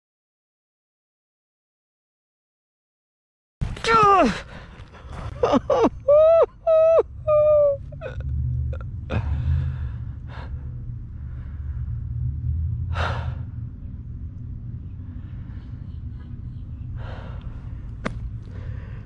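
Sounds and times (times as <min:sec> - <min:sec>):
man shouting wordless cries: 0:03.8 - 0:04.5.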